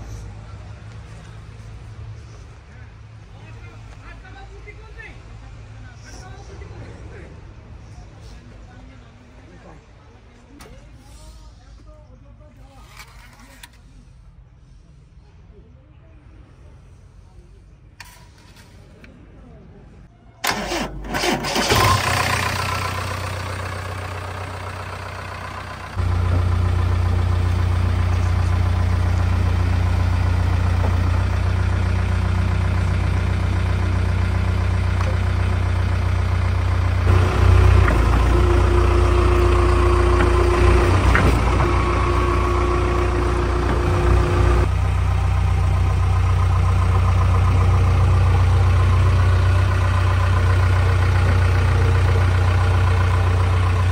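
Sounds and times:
diesel engine starting and running: 0:20.4 - 0:53.9.

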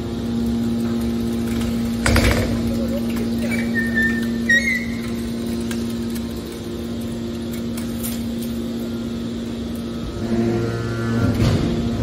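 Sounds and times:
hydraulic machine humming: 0:00.0 - 0:12.0
high squeaks: 0:03.4 - 0:05.2.

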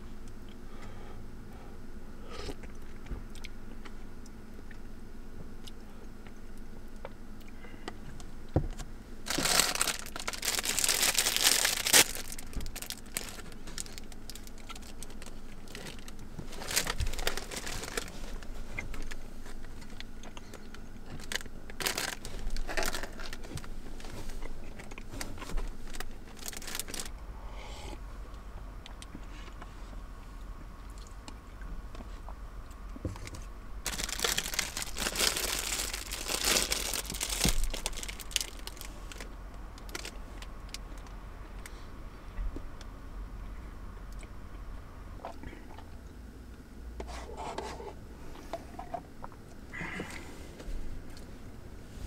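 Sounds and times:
crinkling and rustling: 0:08.6 - 0:27.1, 0:33.0 - 0:41.7.

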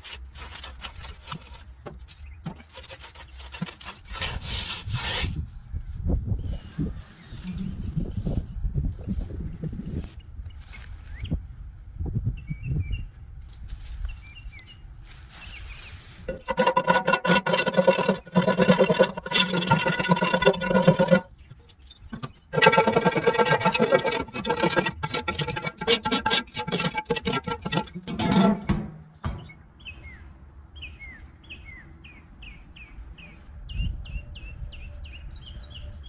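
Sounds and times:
wire brush scrubbing iron pot: 0:16.3 - 0:21.3, 0:22.1 - 0:28.8
knocks: 0:27.5 - 0:29.6.

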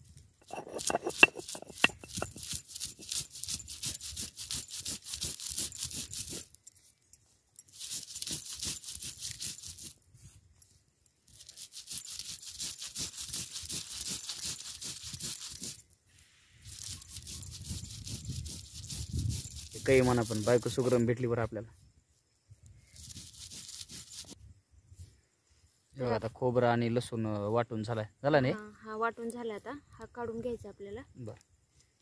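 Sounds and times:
stone scraping and knocking on stone: 0:00.4 - 0:06.6, 0:12.0 - 0:15.8.

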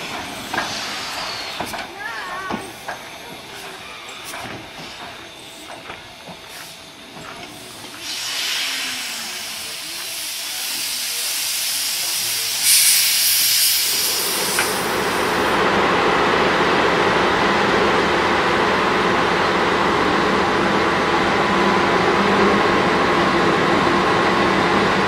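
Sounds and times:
steam locomotive hissing: 0:00.0 - 0:15.7
moving train running noise: 0:00.0 - 0:25.0.

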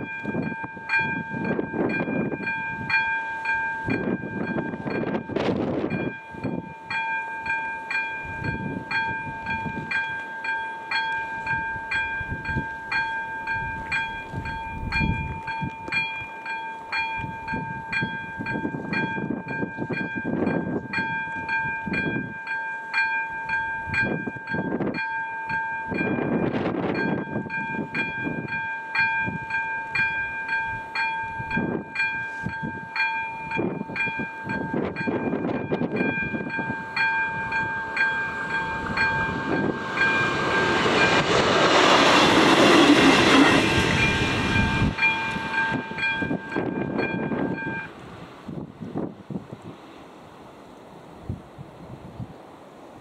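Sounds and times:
level-crossing bell dinging: 0:00.0 - 0:48.0
low rushing noise: 0:35.3 - 0:51.4.

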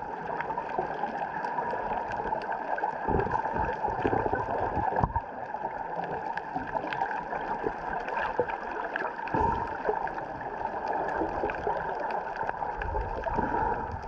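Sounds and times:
underwater sloshing and gurgling: 0:00.0 - 0:14.0
low underwater thumps: 0:03.1 - 0:05.3, 0:09.4 - 0:09.8.

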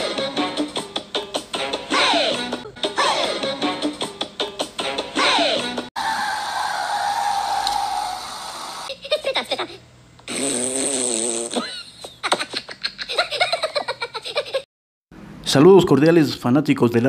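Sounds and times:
steady tone with hiss: 0:07.5 - 0:08.9
giggling laughter: 0:11.6 - 0:14.7.

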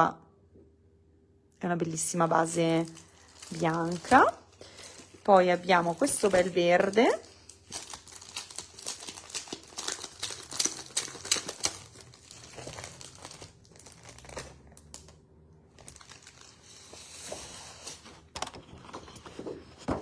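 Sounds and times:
plastic sleeve crinkling: 0:02.0 - 0:20.0
card sheets rustling: 0:02.8 - 0:14.4, 0:15.9 - 0:20.0.

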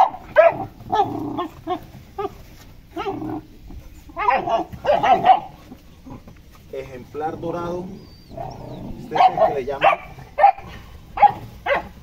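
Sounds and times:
puppies yelping and whining: 0:00.0 - 0:06.3.

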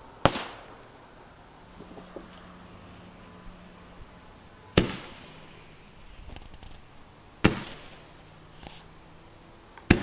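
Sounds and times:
roman candle shots cracking: 0:00.2 - 0:00.9, 0:04.7 - 0:05.6, 0:07.4 - 0:08.9.

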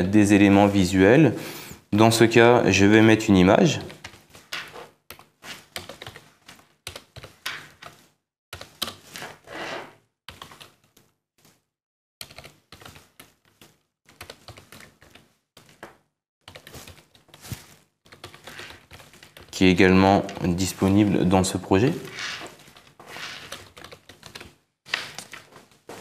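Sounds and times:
computer keyboard typing: 0:03.8 - 0:08.0, 0:08.6 - 0:09.1, 0:10.3 - 0:11.1, 0:12.2 - 0:15.8, 0:16.4 - 0:17.4, 0:18.1 - 0:21.2, 0:22.0 - 0:25.5.

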